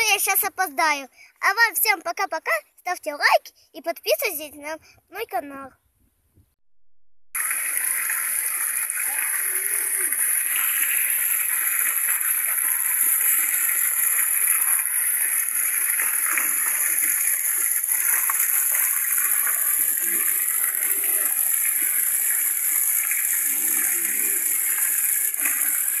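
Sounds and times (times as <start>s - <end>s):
fountain splashing into basin: 7.4s - 26.0s.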